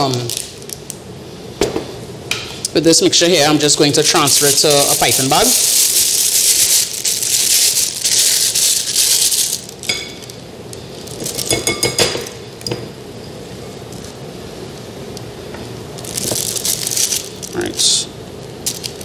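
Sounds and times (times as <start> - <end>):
plastic bag crinkling: 4.0 - 11.5, 16.0 - 17.7.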